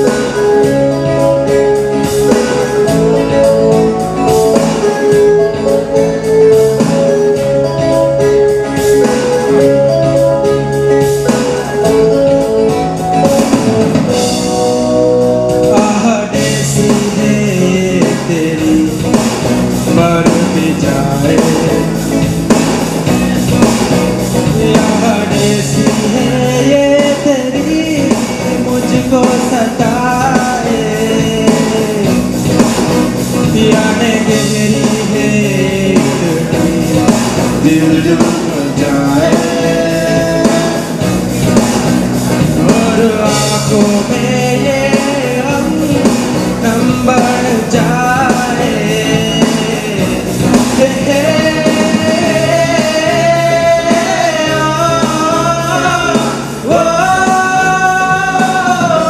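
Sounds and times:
instrumental music: 0:00.0 - 0:59.0
man singing into microphone: 0:14.1 - 0:59.0.

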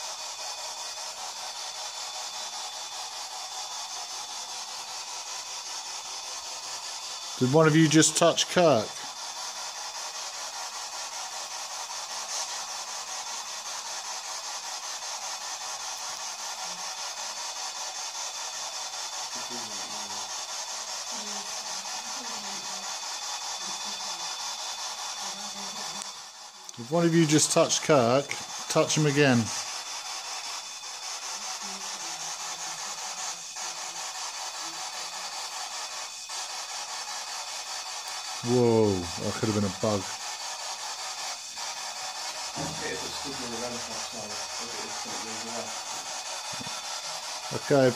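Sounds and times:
high fluttering hiss: 0:00.0 - 0:47.9
high recording hiss: 0:42.5 - 0:47.9.

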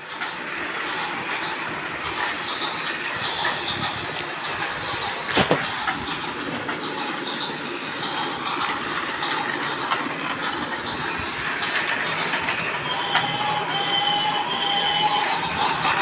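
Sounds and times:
toy train rattling sound effect: 0:00.0 - 0:16.0
toy train wheels and motor: 0:00.0 - 0:16.0
whistle-like tone: 0:10.6 - 0:16.0.

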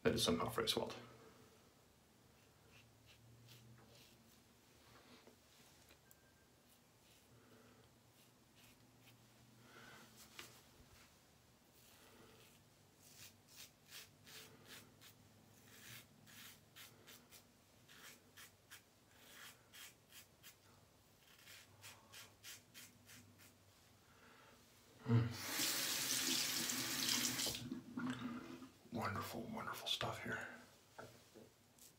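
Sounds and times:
razor scraping stubble: 0:12.4 - 0:20.6, 0:21.2 - 0:23.6
water running into sink: 0:25.4 - 0:28.7.

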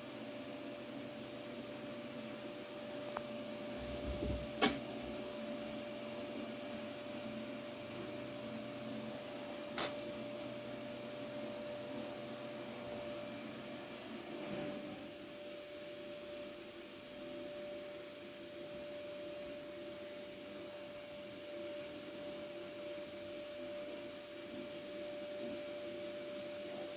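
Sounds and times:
appliance hum: 0:00.0 - 0:16.4.

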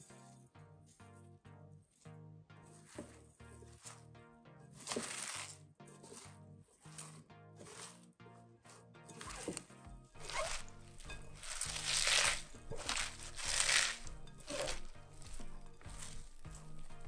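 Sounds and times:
background music: 0:00.0 - 0:17.0
cabbage salad rustling and crunching: 0:02.7 - 0:04.0, 0:04.7 - 0:08.0, 0:09.2 - 0:17.0.

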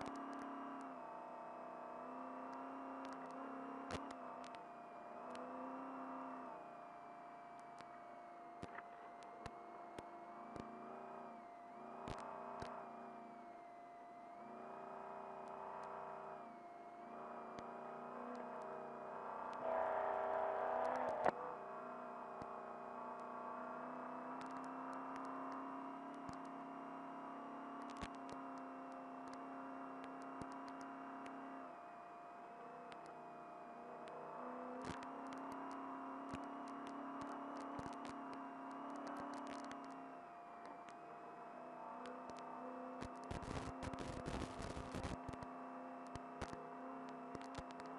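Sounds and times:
steady whine: 0:00.0 - 0:47.9
truck engine revving under load: 0:19.2 - 0:21.3.

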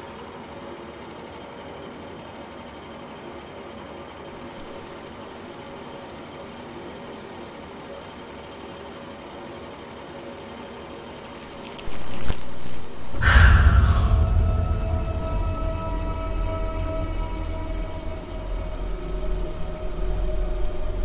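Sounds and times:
brief high squeak: 0:04.4 - 0:04.8, 0:11.9 - 0:21.0
loud deep low sound: 0:11.9 - 0:21.0.

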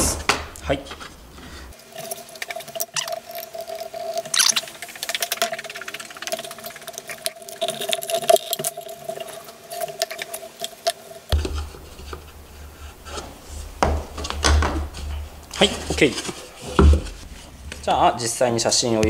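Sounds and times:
steady background tone: 0:00.0 - 0:19.0
wooden boards clicking and scraping: 0:11.3 - 0:17.9
low hum: 0:11.3 - 0:19.0.

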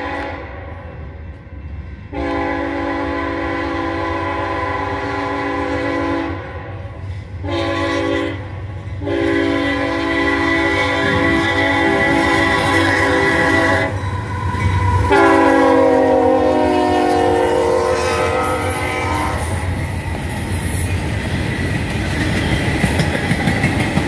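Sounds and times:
locomotive air horn blasts: 0:00.0 - 0:00.8, 0:02.1 - 0:19.7
low rumble of train: 0:00.0 - 0:24.0.

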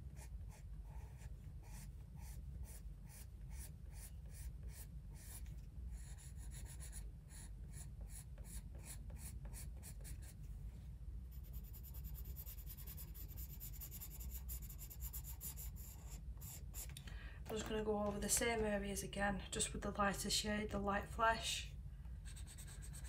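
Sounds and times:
pencil scratching on paper: 0:00.1 - 0:10.4, 0:11.3 - 0:16.9, 0:22.2 - 0:23.0.

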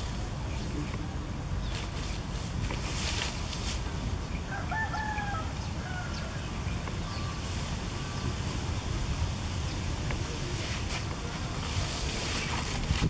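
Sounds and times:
rooster crowing: 0:04.5 - 0:06.5.

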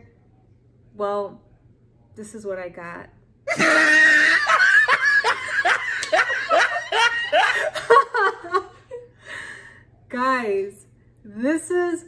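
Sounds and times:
woman laughing hard: 0:03.5 - 0:09.1.

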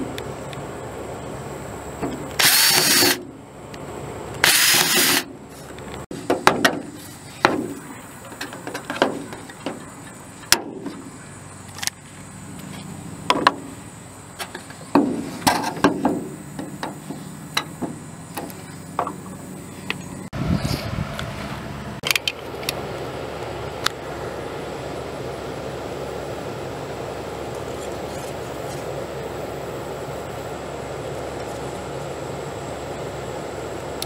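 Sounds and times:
power drill boring metal: 0:02.4 - 0:03.2, 0:04.4 - 0:05.3
sharp clicks and knocks: 0:04.4 - 0:11.1, 0:12.6 - 0:13.7, 0:14.4 - 0:20.0.

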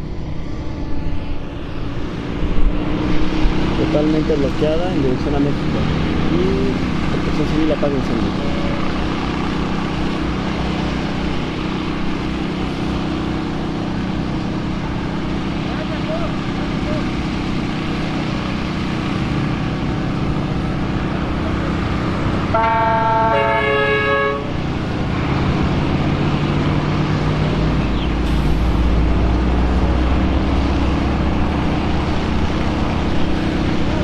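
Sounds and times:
idling engines: 0:00.0 - 0:34.0
vehicle horn honking: 0:22.5 - 0:24.6.

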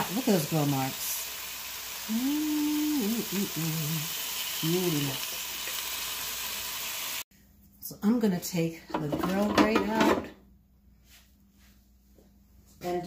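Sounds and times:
meat sizzling on grill: 0:00.0 - 0:07.2.

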